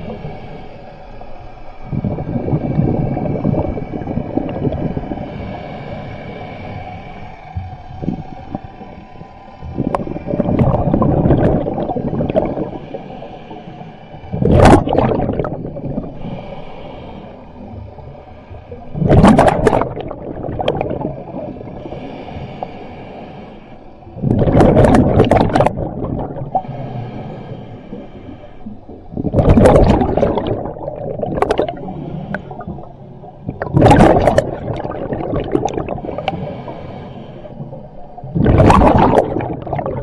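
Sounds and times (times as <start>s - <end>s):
diver exhaling bubbles: 1.9s - 5.3s, 9.7s - 13.0s, 14.3s - 16.3s, 18.8s - 22.0s, 24.2s - 26.8s, 27.9s - 40.0s
hissing inhalations: 15.6s - 19.0s, 21.2s - 24.2s, 26.0s - 29.3s, 31.5s - 33.7s, 34.4s - 38.2s.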